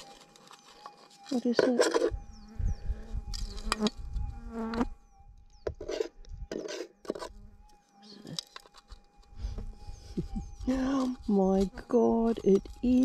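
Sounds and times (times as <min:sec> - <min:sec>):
faint steady tone: 0:00.0 - 0:13.0
flies buzzing: 0:02.0 - 0:05.0.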